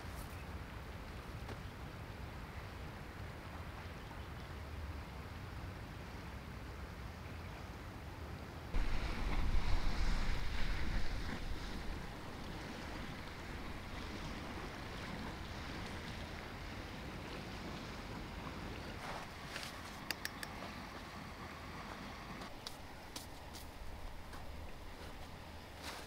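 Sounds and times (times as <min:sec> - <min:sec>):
breeze hiss: 0:08.8 - 0:18.3
wind gusting over microphone: 0:08.8 - 0:19.5.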